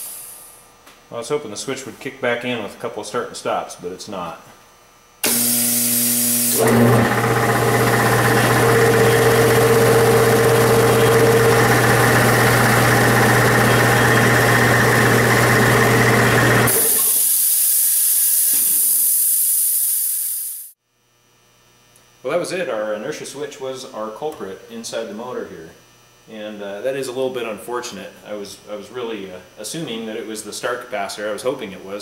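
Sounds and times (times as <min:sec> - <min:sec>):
high hiss of air: 0:00.0 - 0:00.6, 0:16.7 - 0:20.8
air compressor motor running: 0:05.2 - 0:20.7.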